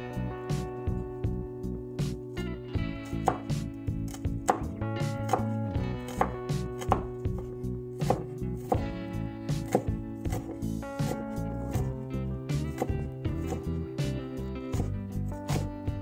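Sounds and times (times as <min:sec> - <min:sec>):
background music: 0:00.0 - 0:16.0
cleaver chopping on wooden board: 0:03.2 - 0:08.9, 0:09.5 - 0:11.9, 0:12.5 - 0:13.8, 0:14.7 - 0:15.7.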